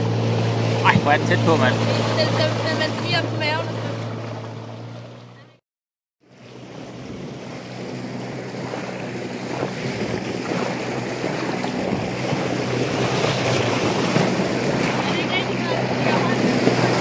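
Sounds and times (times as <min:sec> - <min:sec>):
boat motor humming: 0:00.0 - 0:05.6, 0:06.2 - 0:17.0
water rushing along hull: 0:00.0 - 0:05.6, 0:06.2 - 0:17.0
wind buffeting microphone: 0:06.9 - 0:17.0.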